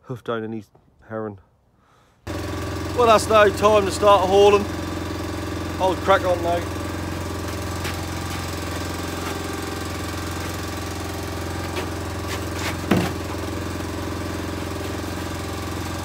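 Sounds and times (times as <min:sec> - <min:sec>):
boat engine idling: 0:02.3 - 0:16.0
knocks and clunks on board: 0:12.6 - 0:13.2.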